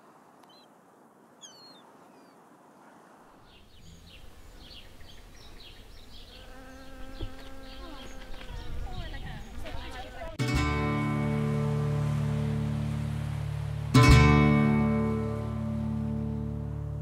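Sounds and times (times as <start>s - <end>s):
bee buzzing: 4.0s - 10.4s
wind rumble on microphone: 7.2s - 10.4s.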